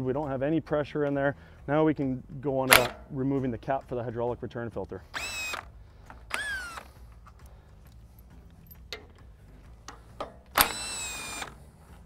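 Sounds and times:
cordless power driver whining: 2.7s - 3.0s, 5.1s - 12.0s
metal ticks and knocks: 7.2s - 10.6s.

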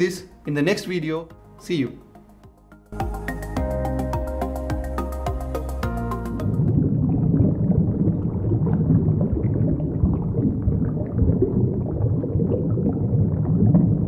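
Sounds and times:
water bubbling and churning: 6.4s - 14.0s.

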